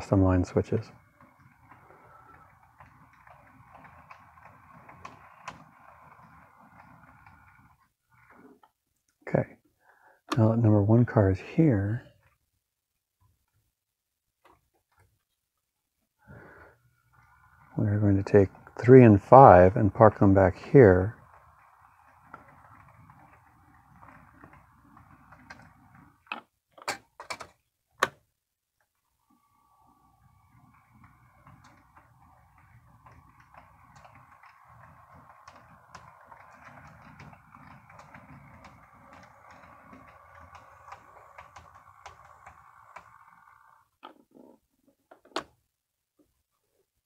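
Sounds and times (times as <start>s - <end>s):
model train motor humming: 0.0s - 8.6s, 16.4s - 26.2s, 29.3s - 43.9s
wheels clicking over rail joints: 0.0s - 8.8s, 16.6s - 27.6s, 30.1s - 44.2s.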